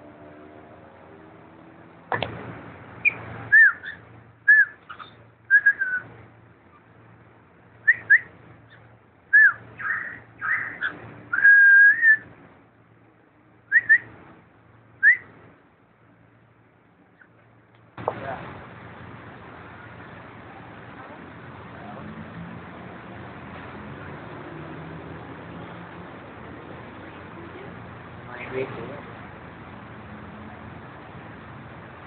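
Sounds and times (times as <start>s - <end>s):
cockatiel whistling: 3.0s - 6.0s, 7.8s - 12.2s, 13.7s - 14.1s, 15.0s - 15.3s.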